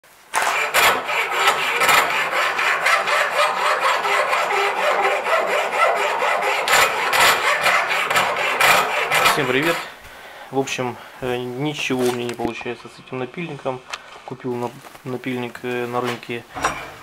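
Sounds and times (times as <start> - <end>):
file scraping steel blade: 0.3 - 10.0.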